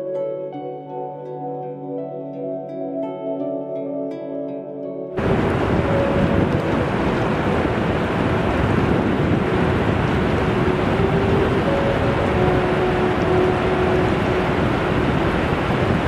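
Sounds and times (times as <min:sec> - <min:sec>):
waves breaking on sandy shore: 0:05.2 - 0:16.0.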